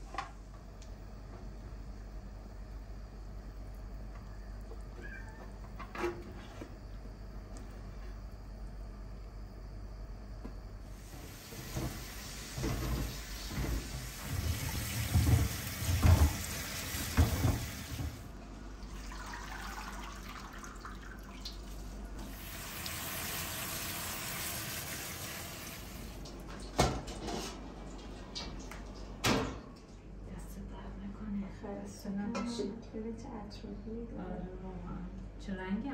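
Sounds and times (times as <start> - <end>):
splashing as food is rinsed: 10.9 - 27.2
tap running into steel sink: 14.5 - 18.2.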